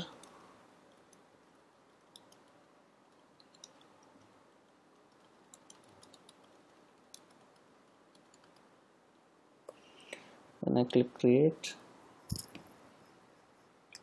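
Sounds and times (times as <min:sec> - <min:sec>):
low room hiss: 0:00.0 - 0:14.0
keyboard typing clicks: 0:02.1 - 0:02.5, 0:03.1 - 0:04.0, 0:05.1 - 0:08.7.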